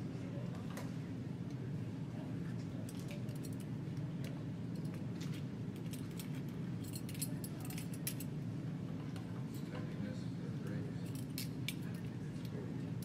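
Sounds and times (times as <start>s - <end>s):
steady low hum: 0.0s - 13.0s
metallic clinks and jingles: 5.8s - 8.3s.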